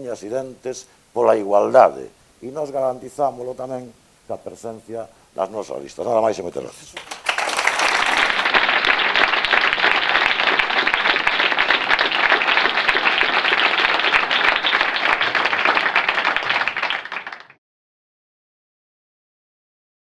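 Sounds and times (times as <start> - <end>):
audience applauding: 7.0 - 17.6.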